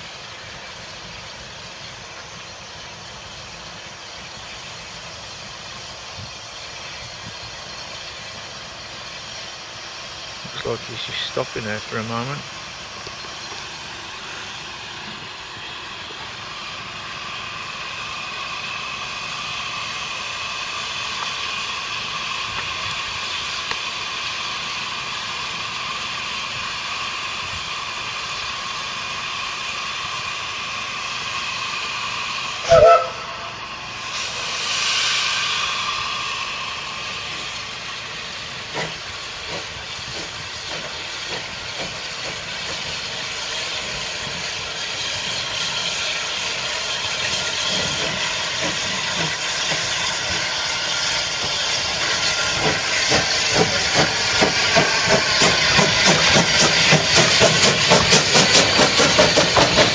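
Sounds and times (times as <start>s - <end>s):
steam locomotive hissing: 0.0s - 59.9s
loud steam whistle blast: 32.6s - 36.8s.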